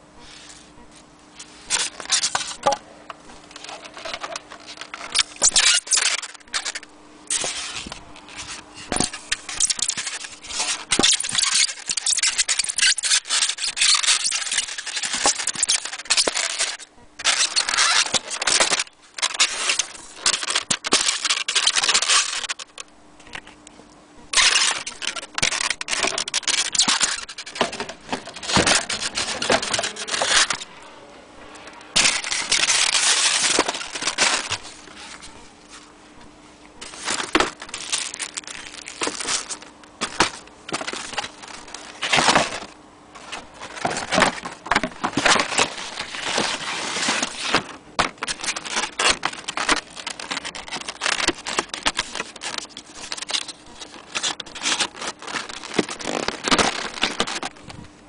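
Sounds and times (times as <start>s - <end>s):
foam and cardboard scraping: 7.3s - 22.5s, 36.8s - 57.6s.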